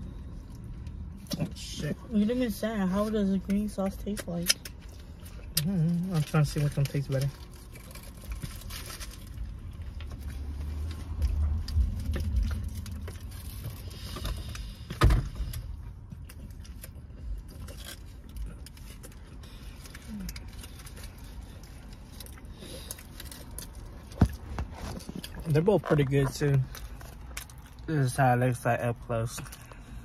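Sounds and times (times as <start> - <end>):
person chewing: 4.4 - 14.8, 15.4 - 28.0.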